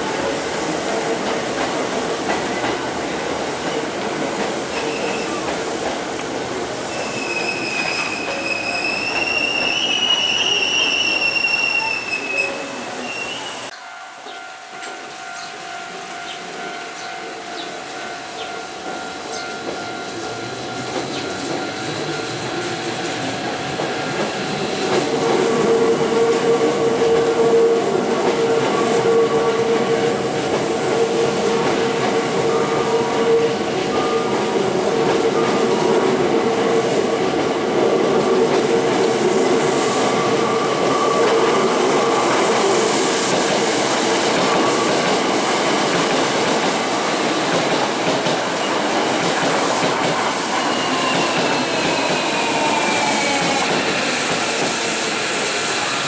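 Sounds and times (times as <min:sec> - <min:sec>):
train braking whine: 0:06.8 - 0:37.4, 0:39.4 - 0:45.6, 0:48.4 - 0:56.0.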